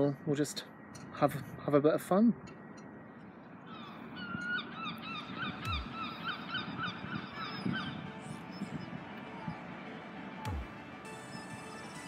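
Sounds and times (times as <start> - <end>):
bird calling repeated notes: 3.6 - 9.8, 10.4 - 12.0.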